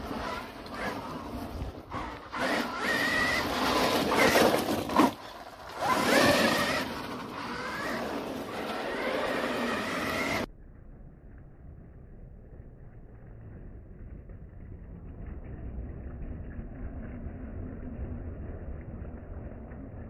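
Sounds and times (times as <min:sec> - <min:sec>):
electric motor whine: 0:00.0 - 0:05.0, 0:05.7 - 0:10.5.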